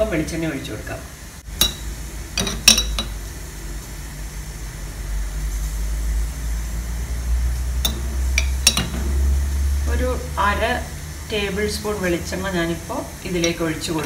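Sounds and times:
low steady hum: 0:00.0 - 0:14.0
metal spoon clinking: 0:02.4 - 0:03.1, 0:07.8 - 0:09.1, 0:13.4 - 0:13.7.

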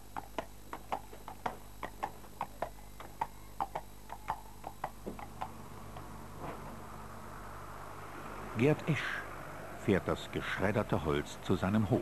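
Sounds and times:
horse hooves on asphalt: 0:00.0 - 0:06.8.

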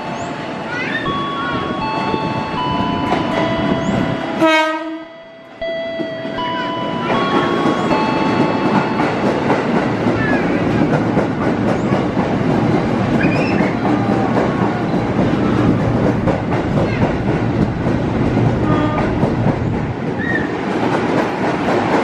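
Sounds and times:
electric train passing: 0:00.0 - 0:22.0
train horn blast: 0:04.4 - 0:05.1, 0:18.6 - 0:19.2
wheels clacking over rail joints: 0:06.0 - 0:22.0.

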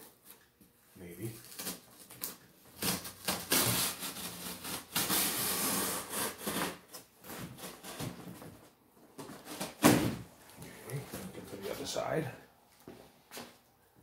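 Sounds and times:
packing tape ripping off cardboard: 0:01.4 - 0:08.4, 0:09.3 - 0:10.2.

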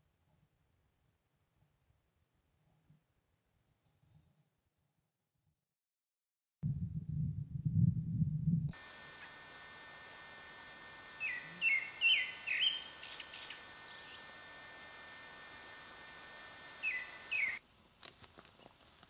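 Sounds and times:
steady background hiss: 0:08.8 - 0:18.8
bird calling: 0:11.1 - 0:14.4, 0:16.7 - 0:17.6.

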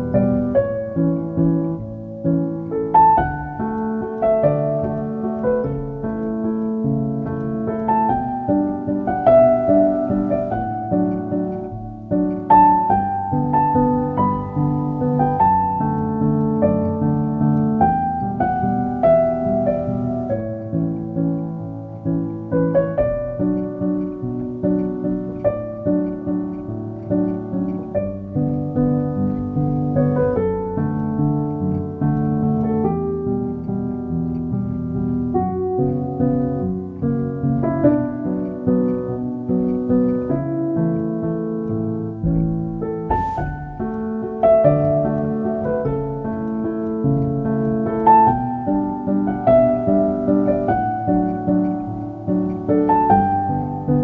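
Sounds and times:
gentle piano melody: 0:00.0 - 0:54.0
hiss-like swell: 0:43.1 - 0:43.8.

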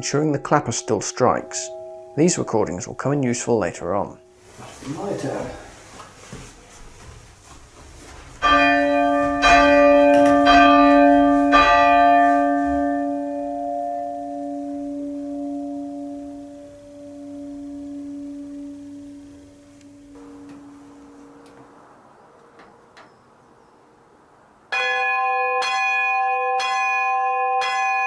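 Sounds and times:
bell humming: 0:00.2 - 0:05.8, 0:08.4 - 0:23.8
church bell struck by clapper: 0:00.6 - 0:04.4, 0:08.4 - 0:23.2, 0:24.7 - 0:28.0.

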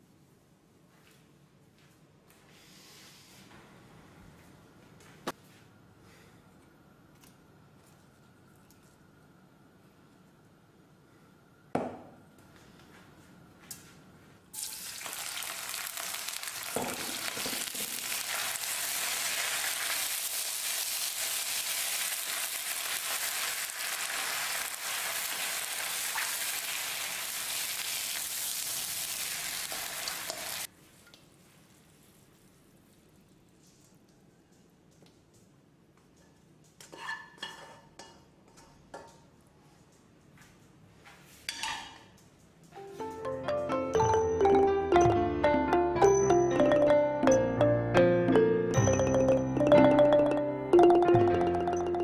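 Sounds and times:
knock: 0:11.8 - 0:12.2
food sizzling in a wok: 0:14.6 - 0:30.7.

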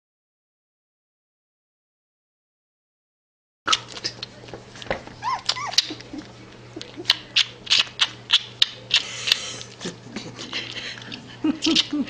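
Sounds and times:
puppy whimpering squeaks: 0:05.2 - 0:06.3
puppy sucking on pacifier: 0:05.2 - 0:10.0.

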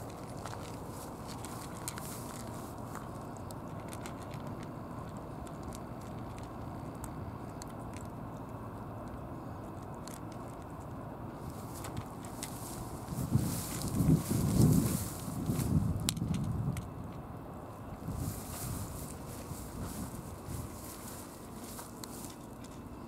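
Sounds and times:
cats crunching dry kibble: 0:00.0 - 0:23.0
low background rumble: 0:00.0 - 0:23.0.

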